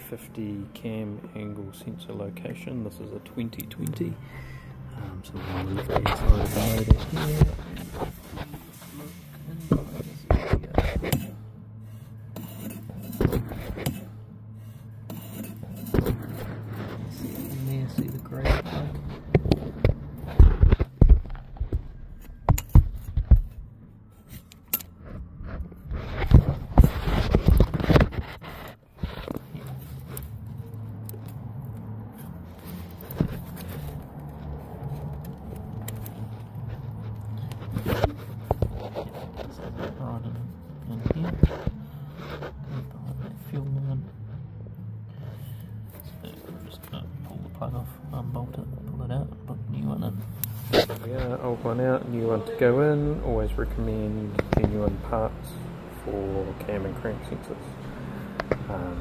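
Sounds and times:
plastic plug scraping and clicking: 24.3s - 30.4s, 54.3s - 55.0s.

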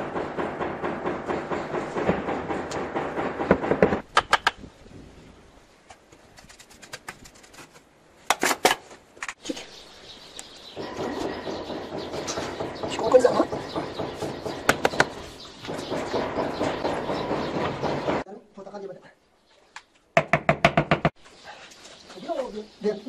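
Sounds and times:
knocks on stone tiles: 11.0s - 18.2s, 20.2s - 21.2s.

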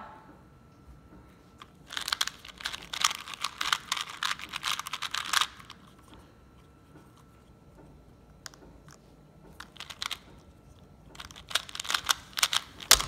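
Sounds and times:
plastic puzzle cube clacking: 1.6s - 6.2s, 8.4s - 13.0s.

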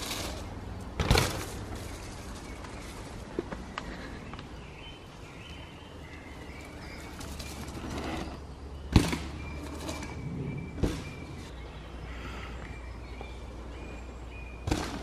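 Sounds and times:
bike landing thuds: 1.0s - 1.7s
birds singing: 1.6s - 15.0s.

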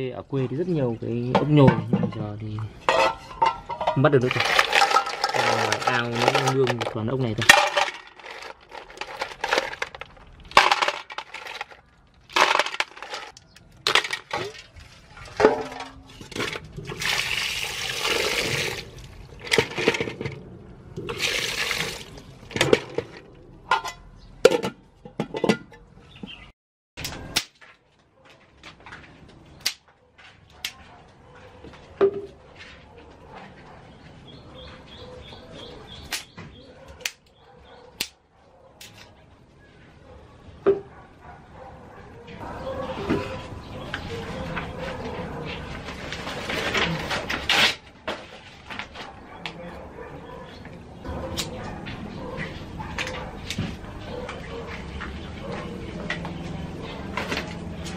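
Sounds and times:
snail shells clattering on metal: 2.9s - 14.5s
water pouring and sloshing: 12.4s - 23.4s
sharp snaps: 36.1s - 36.4s.

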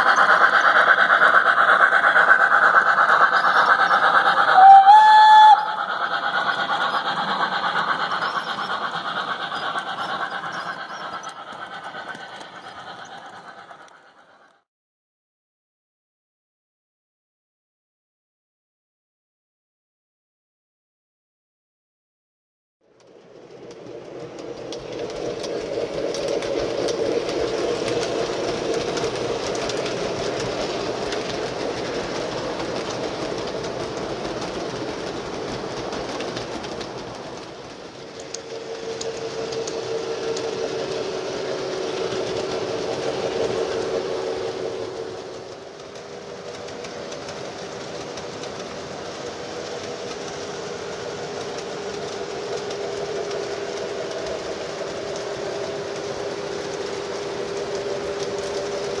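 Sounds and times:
wheels clicking over rail joints: 23.0s - 59.0s
model train motor hum: 23.4s - 59.0s.

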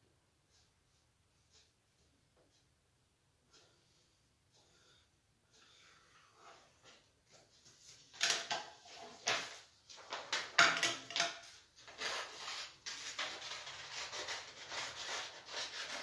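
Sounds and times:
paper rubbing: 11.8s - 16.0s.

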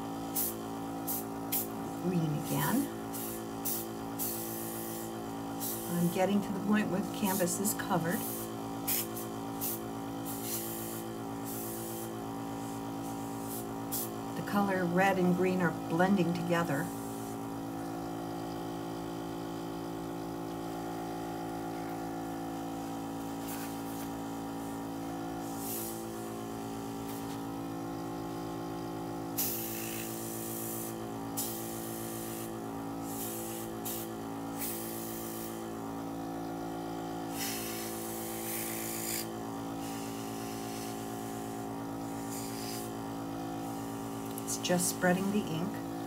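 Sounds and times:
airbrush air hisses: 3.1s - 6.2s, 7.2s - 14.2s, 25.4s - 26.4s, 29.4s - 35.7s, 37.3s - 43.0s.

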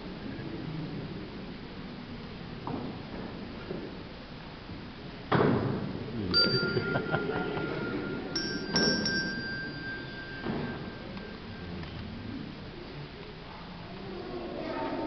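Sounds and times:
low room murmur: 0.0s - 15.0s
bell-like notes: 6.3s - 11.8s.

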